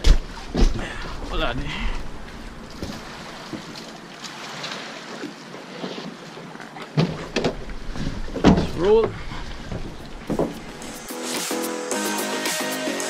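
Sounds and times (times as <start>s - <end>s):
light wind: 0.0s - 5.7s
water moving around boat: 0.0s - 11.5s
sharp knocks: 7.0s - 11.0s.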